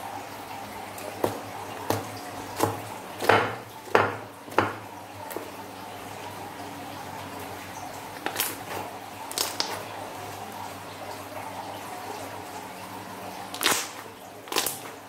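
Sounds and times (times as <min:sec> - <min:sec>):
slime squelching: 0:08.1 - 0:09.8, 0:13.5 - 0:15.0.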